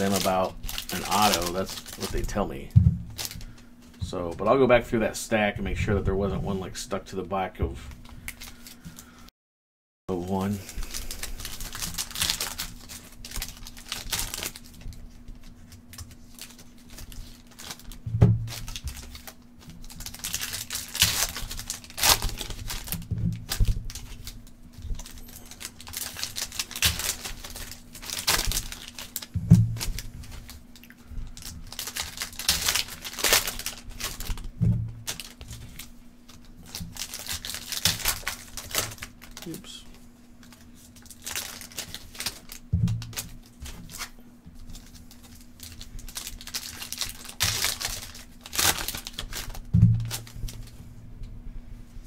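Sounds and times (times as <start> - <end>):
foil wrappers crinkling: 0.0 - 5.2, 7.8 - 9.3, 10.1 - 50.9
faint steady hum: 0.0 - 9.3, 10.1 - 52.0
dull thumps: 2.7 - 3.4, 18.0 - 19.0, 29.3 - 30.3, 34.5 - 35.1, 42.7 - 43.8, 49.7 - 50.2.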